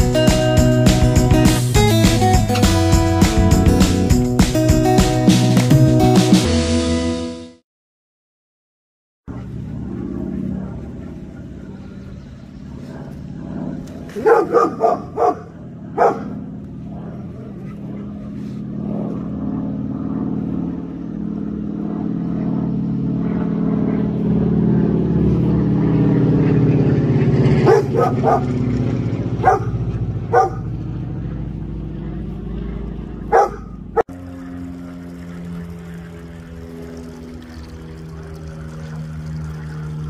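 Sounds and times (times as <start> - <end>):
low mechanical hum: 9.3 - 40.0
dog barking: 14.1 - 16.4, 27.6 - 28.6, 29.4 - 30.7, 33.3 - 33.8.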